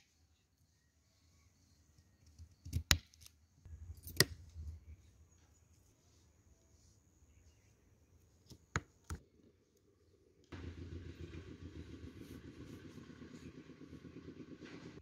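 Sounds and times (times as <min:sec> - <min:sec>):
steady engine hum: 0:03.6 - 0:15.0.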